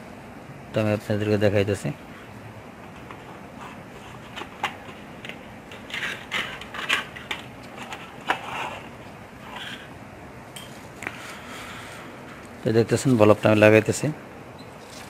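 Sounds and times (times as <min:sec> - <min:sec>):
wires rustling: 0:14.7 - 0:15.0.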